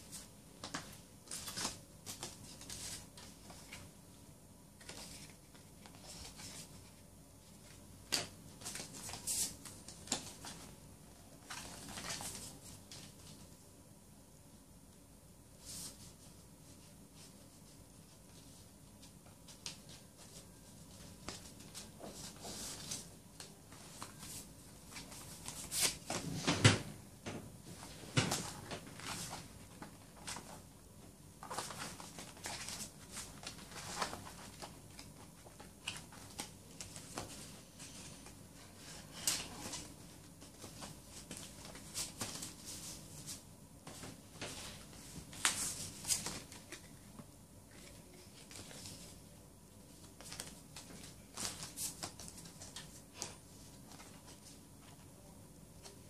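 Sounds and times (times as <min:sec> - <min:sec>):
cardboard and paper rustling: 0:04.8 - 0:13.4, 0:27.7 - 0:30.7, 0:31.4 - 0:49.2, 0:49.9 - 0:55.1.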